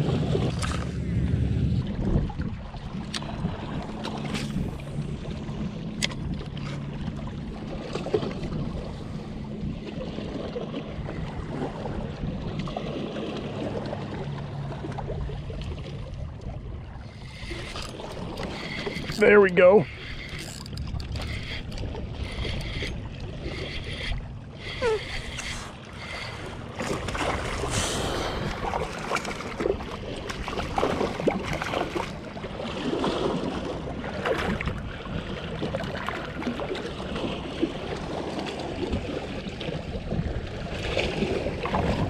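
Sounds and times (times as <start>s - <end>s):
wind buffeting microphone: 0.0s - 5.6s
water lapping against kayak hull: 0.0s - 42.0s
fishing rod and reel clicks: 6.0s - 6.8s, 17.1s - 26.6s.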